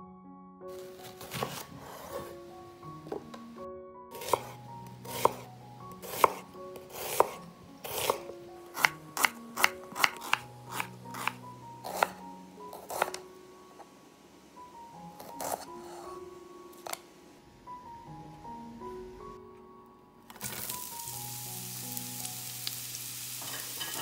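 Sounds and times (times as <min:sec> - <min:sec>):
soft background music: 0:00.0 - 0:24.0
knife slicing on wooden board: 0:04.2 - 0:05.4, 0:06.0 - 0:12.2, 0:12.8 - 0:13.2.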